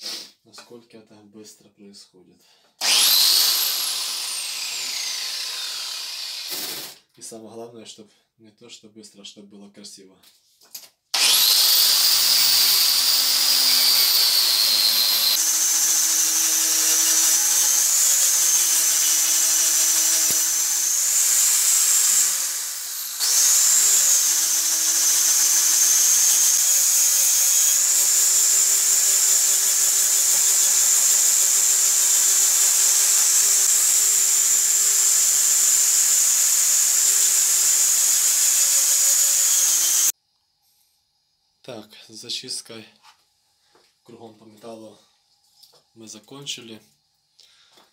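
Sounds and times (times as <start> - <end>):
angle grinder high whine: 2.8 - 7.0, 11.2 - 40.1.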